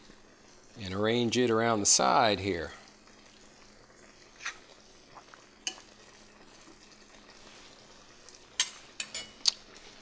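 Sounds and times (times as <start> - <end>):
faint steady hiss: 0.0 - 10.0
metal tongs clinking on pot: 5.6 - 5.9, 8.6 - 9.6.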